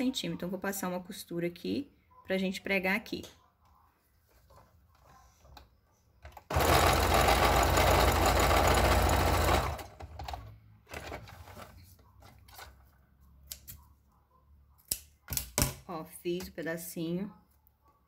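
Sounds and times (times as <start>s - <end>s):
electric sewing machine stitching: 6.4s - 10.4s.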